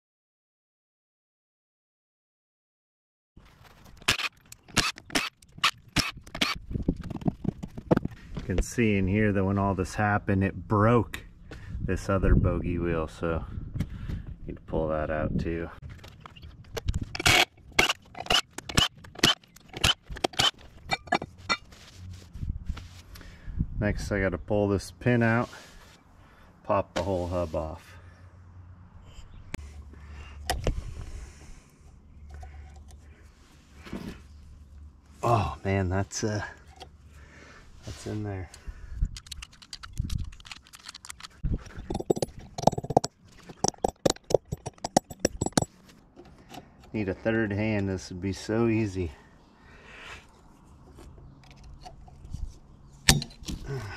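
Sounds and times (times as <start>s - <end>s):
rattle of clicks: 39.1s - 46.6s
hand tools striking steel: 53.1s - 53.4s.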